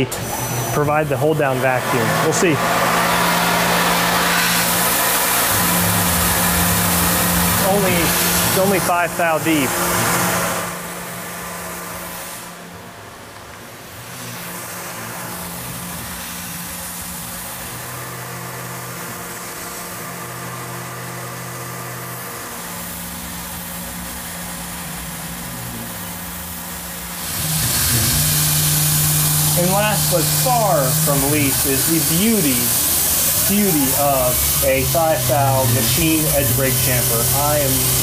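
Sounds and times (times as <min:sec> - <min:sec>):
milling machine cutting metal: 0:00.0 - 0:38.0
steady hiss: 0:22.6 - 0:38.0.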